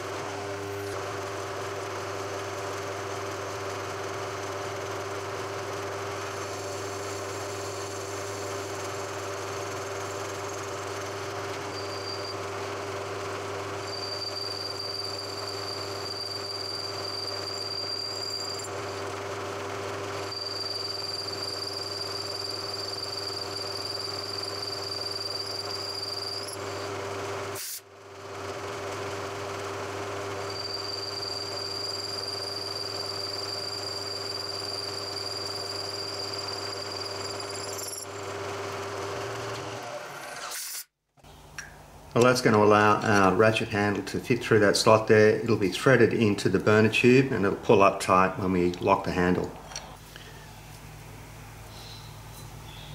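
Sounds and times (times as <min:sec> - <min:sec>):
high cutter whine: 0:06.2 - 0:27.0.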